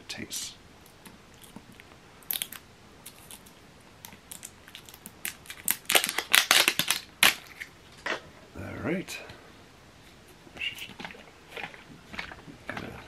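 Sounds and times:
plastic bottle cap cracking open: 4.3 - 7.7.

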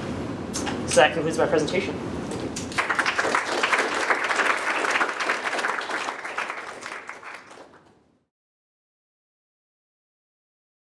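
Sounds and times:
audience applauding: 2.6 - 7.9.

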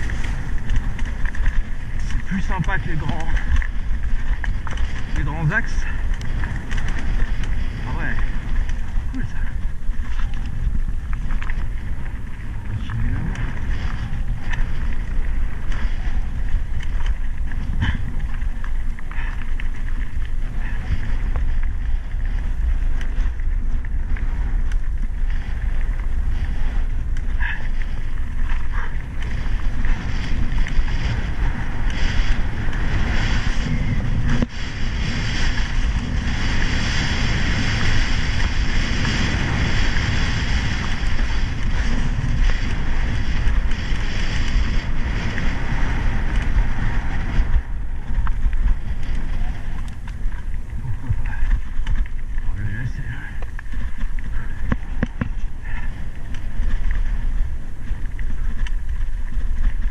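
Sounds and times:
bike rattling over bumps: 0.0 - 59.9
tyres crunching on gravel: 0.0 - 59.9
wind buffeting microphone: 0.0 - 59.9.

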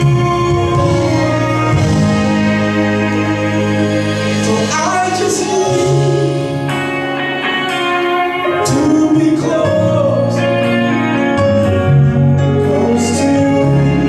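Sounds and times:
worship song with singing: 4.1 - 6.8, 8.6 - 10.7, 12.5 - 14.0.

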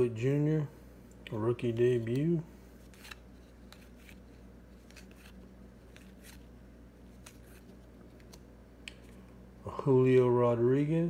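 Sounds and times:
low steady hum: 0.0 - 11.0
trading cards being thumbed: 1.8 - 6.5.

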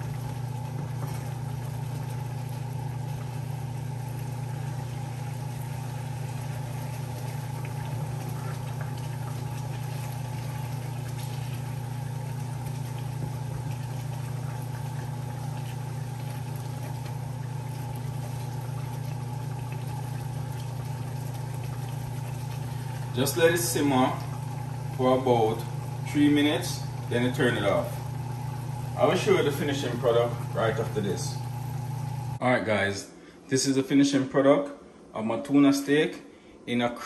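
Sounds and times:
food simmering in a frying pan: 0.0 - 32.4
steady low hum: 0.0 - 37.0.

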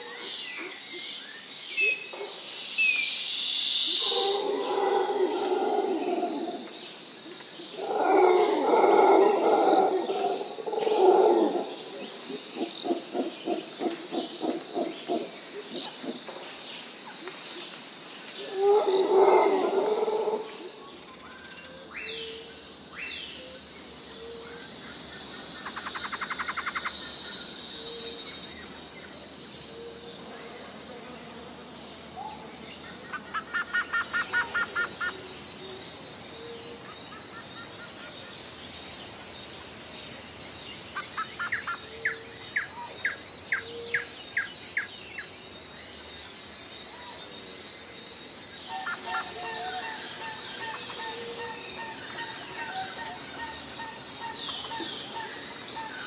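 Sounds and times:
high insect buzz: 0.0 - 42.5
wild bird calls: 3.9 - 16.5, 23.3 - 31.2, 32.2 - 39.5, 40.7 - 45.0, 48.5 - 56.0.

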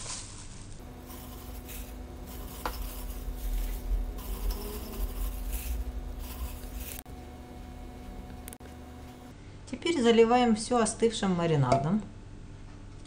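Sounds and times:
vegetables rustling and squishing: 0.0 - 7.1
faint steady hum: 0.8 - 13.0.

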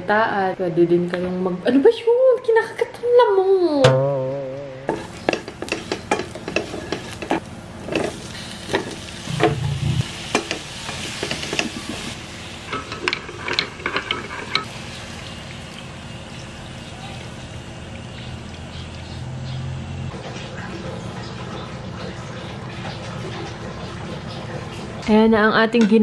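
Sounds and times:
spatula knocking against pan: 3.8 - 4.3
vegetables sizzling in oil: 4.9 - 18.6.

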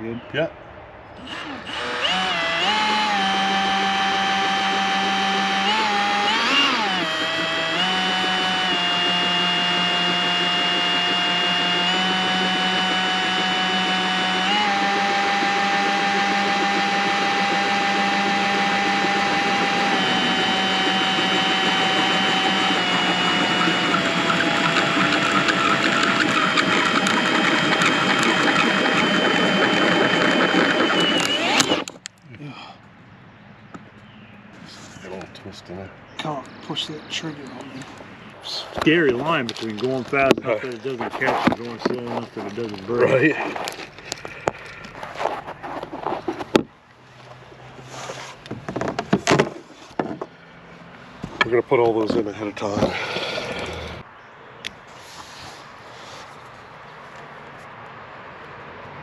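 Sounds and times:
cordless drill motor whine: 1.2 - 32.0, 52.8 - 54.0.

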